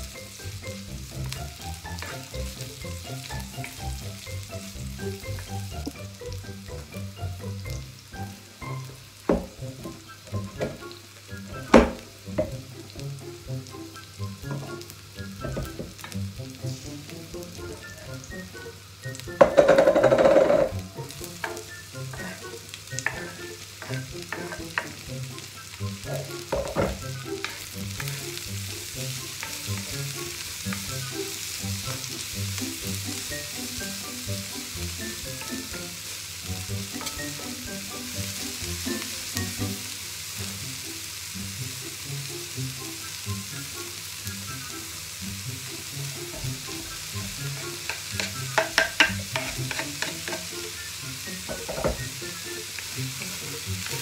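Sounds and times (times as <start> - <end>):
onions sizzling in a wok: 0.0 - 54.0
wooden spatula scraping a wok: 19.5 - 25.4, 26.1 - 28.5, 45.7 - 50.7.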